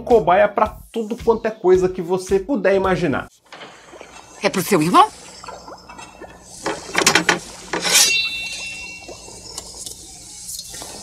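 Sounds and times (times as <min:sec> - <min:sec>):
ringing metallic shing: 0:07.1 - 0:09.6
knife sharpening scrapes: 0:07.7 - 0:08.7.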